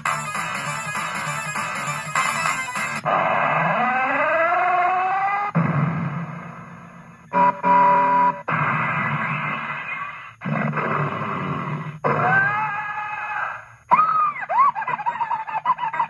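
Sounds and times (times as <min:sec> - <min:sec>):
bear growl effect: 0:10.4 - 0:12.8.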